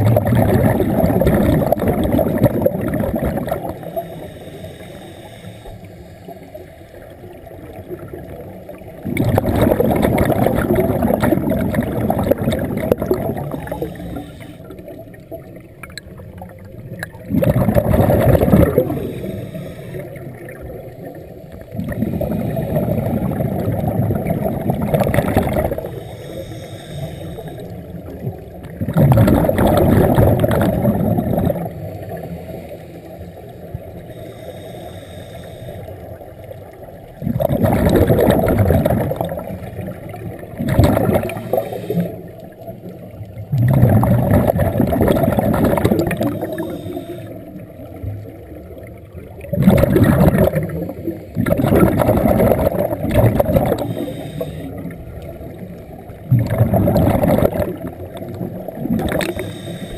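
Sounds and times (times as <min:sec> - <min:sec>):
diver exhaling bubbles: 0:00.0 - 0:04.4, 0:07.8 - 0:15.4, 0:17.0 - 0:32.7, 0:37.1 - 0:48.7, 0:49.4 - 0:59.9
diver inhaling through regulator: 0:01.2 - 0:06.6, 0:13.0 - 0:15.0, 0:17.7 - 0:20.6, 0:21.8 - 0:23.5, 0:25.3 - 0:28.1, 0:31.5 - 0:36.2, 0:40.9 - 0:42.6, 0:45.8 - 0:47.8, 0:50.3 - 0:55.0, 0:59.0 - 0:59.9.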